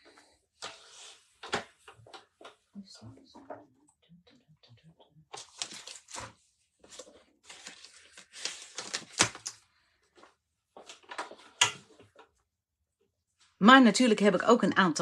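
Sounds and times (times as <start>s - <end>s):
craft supplies rustling and crinkling: 5.3s - 12.3s.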